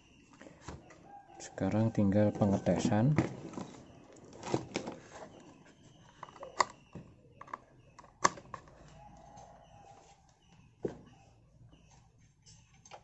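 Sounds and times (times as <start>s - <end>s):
plastic parts clicking and knocking: 2.8s - 9.4s.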